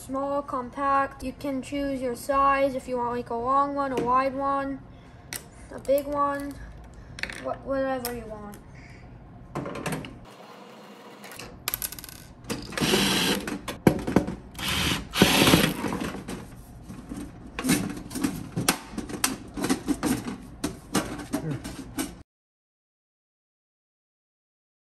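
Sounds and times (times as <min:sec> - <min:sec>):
impact driver backing out screws: 0:12.6 - 0:13.6, 0:14.6 - 0:16.0.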